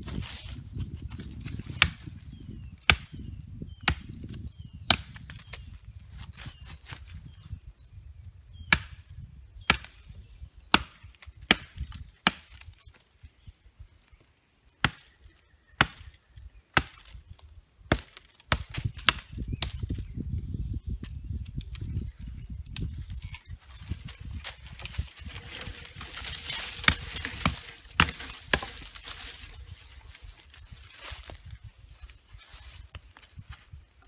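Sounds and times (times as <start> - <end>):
knife chopping wood: 1.7 - 2.1, 2.8 - 3.2, 3.8 - 5.5, 8.7 - 9.0, 9.7 - 10.0, 10.7 - 12.7, 14.8 - 15.1, 15.8 - 16.1, 16.7 - 17.2, 17.9 - 19.9, 25.6 - 29.5.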